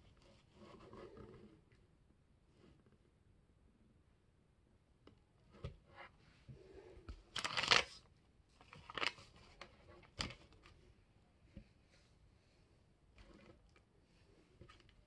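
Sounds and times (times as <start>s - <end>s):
paper rustling and crinkling: 7.3s - 10.8s.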